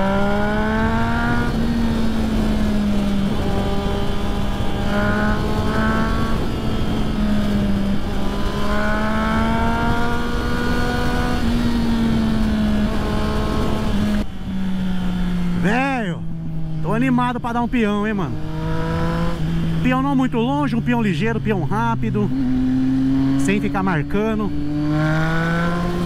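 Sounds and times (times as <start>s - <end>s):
wind rush on microphone: 0.0s - 14.6s
motorcycle engine cruising: 0.0s - 26.0s.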